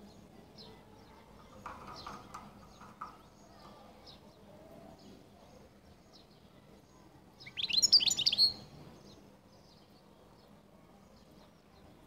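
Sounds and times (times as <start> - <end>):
high bird chirp: 7.4 - 8.7.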